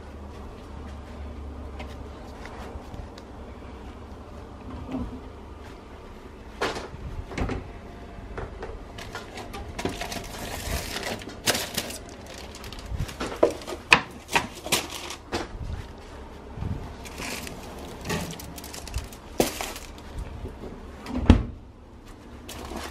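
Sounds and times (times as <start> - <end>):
baking trays knocking and clattering: 8.4 - 15.6, 17.1 - 20.0.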